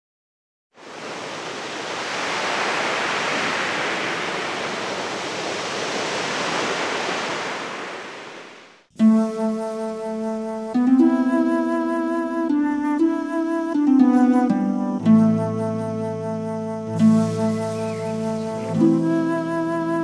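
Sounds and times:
steady rushing noise: 0.9s - 8.9s.

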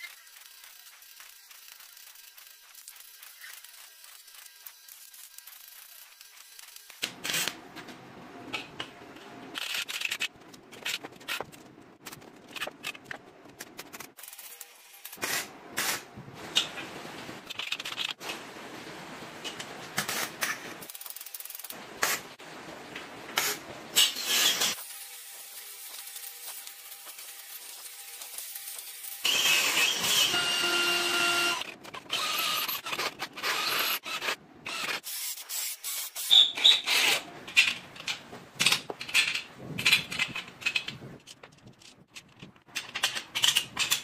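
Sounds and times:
arc welding crackling: 0.0s - 7.6s, 19.5s - 34.4s.

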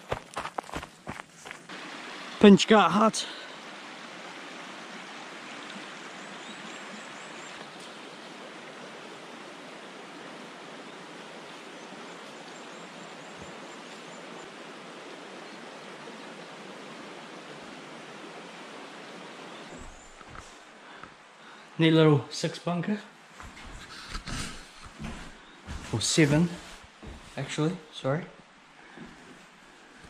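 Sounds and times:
stream water rushing: 0.0s - 22.3s.

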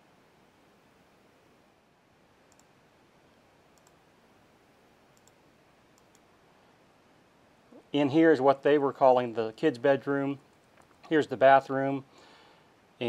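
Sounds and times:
computer mouse clicks: 2.5s - 2.7s, 3.7s - 4.0s, 5.2s - 6.3s, 10.5s - 11.1s.

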